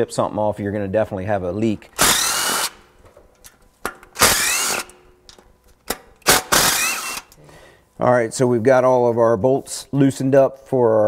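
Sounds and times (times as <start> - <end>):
power tool whining: 2.0 - 2.9, 4.2 - 5.1, 6.2 - 7.4.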